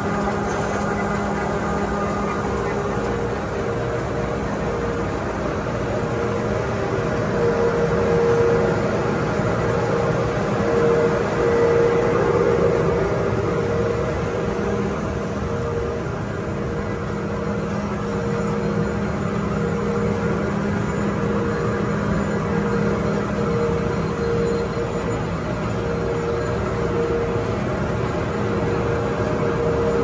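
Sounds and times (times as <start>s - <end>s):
machine mechanical drone: 0.0s - 30.0s.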